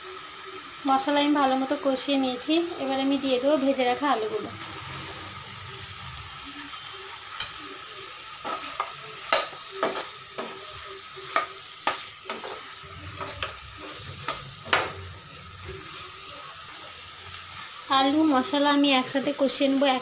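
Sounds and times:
steady sizzle: 0:00.0 - 0:20.0
spatula scraping pan: 0:08.4 - 0:17.9.

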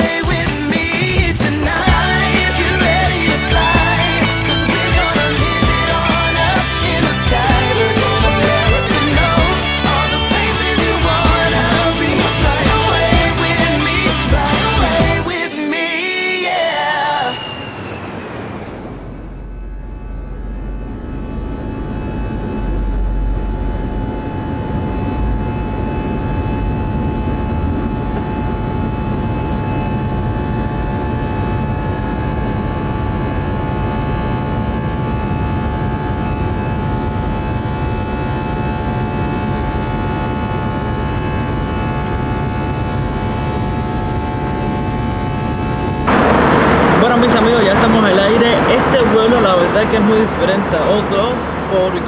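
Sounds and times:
jet engines roaring in cabin: 0:00.0 - 0:52.0
engine whining tones: 0:00.1 - 0:52.0
deep rumble: 0:17.1 - 0:52.0.

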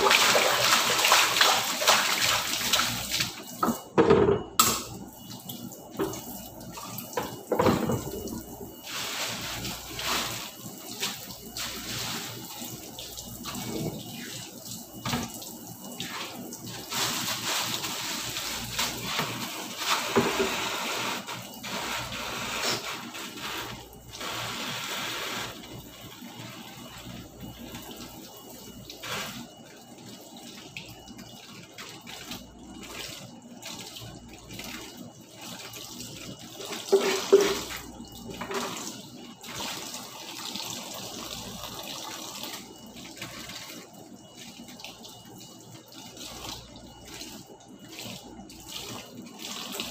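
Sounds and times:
tap water running into sink: 0:00.0 - 0:49.9.

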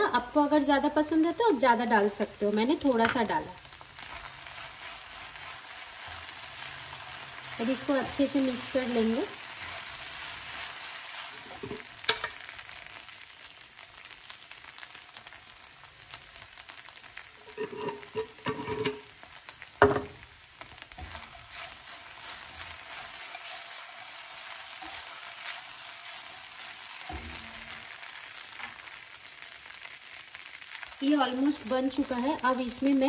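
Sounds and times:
tapioca pearls sizzling in pan: 0:00.0 - 0:33.0
spatula scraping and knocking pan: 0:11.3 - 0:12.5, 0:17.4 - 0:19.1, 0:19.8 - 0:20.2, 0:20.8 - 0:28.9.

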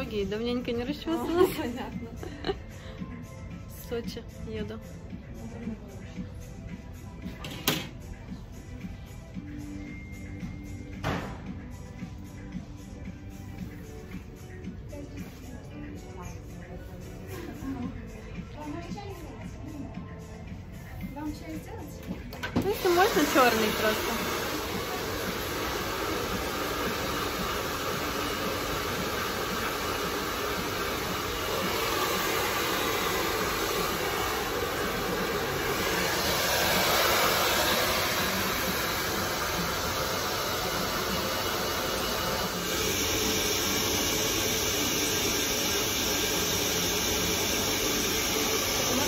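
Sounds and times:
hair dryer blowing: 0:22.0 - 0:49.0.

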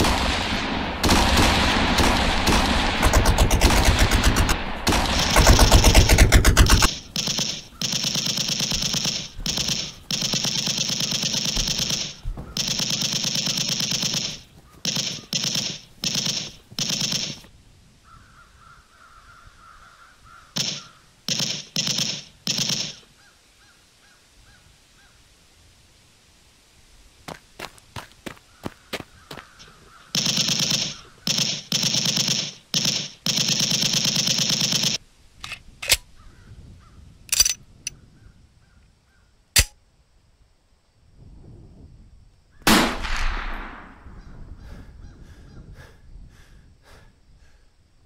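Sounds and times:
automatic gunfire bursts: 0:00.0 - 0:17.4, 0:20.6 - 0:23.0, 0:30.1 - 0:35.0.

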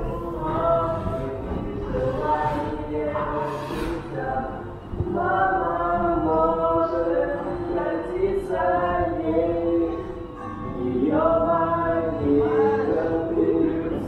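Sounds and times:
choir singing held notes: 0:00.0 - 0:14.0.

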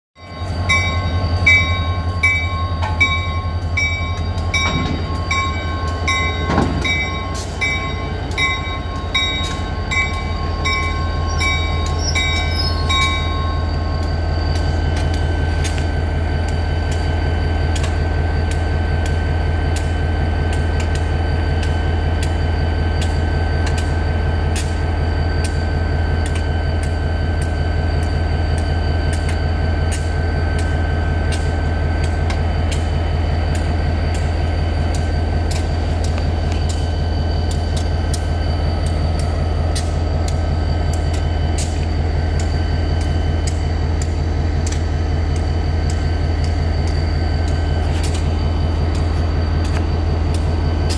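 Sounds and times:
bell ringing: 0:00.2 - 0:13.7
diesel locomotive idling: 0:00.2 - 0:50.9
faint regular clicking: 0:34.9 - 0:48.3.

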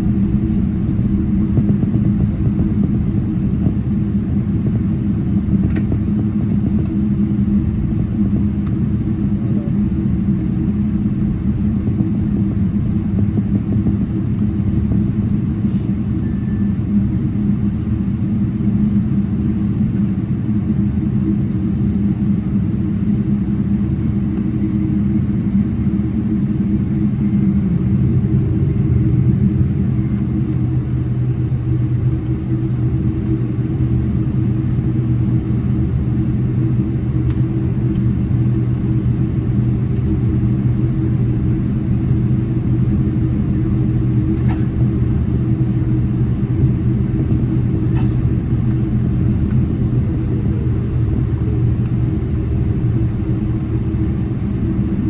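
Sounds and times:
taxiing rumble: 0:00.0 - 0:06.2
jet engines idling drone: 0:00.0 - 0:55.0.

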